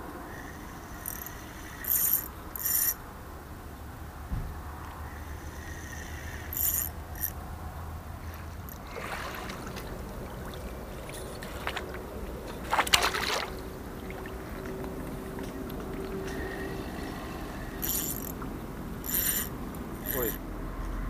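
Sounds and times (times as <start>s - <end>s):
net splashing into water: 8.8s - 11.8s, 12.6s - 14.4s.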